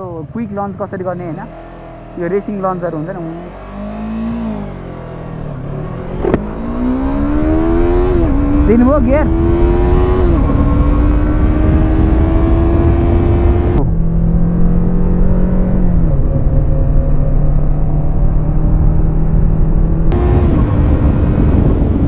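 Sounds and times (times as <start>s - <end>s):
motorcycle engine accelerating: 0.0s - 22.0s
wind noise on microphone: 5.7s - 22.0s.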